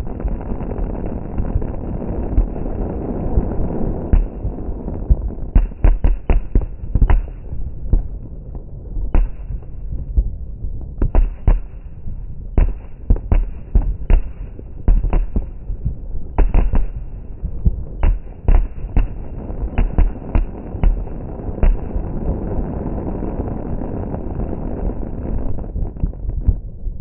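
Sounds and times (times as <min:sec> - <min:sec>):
fireworks bursting: 0:00.0 - 0:26.8
steady low rumble: 0:00.0 - 0:27.0.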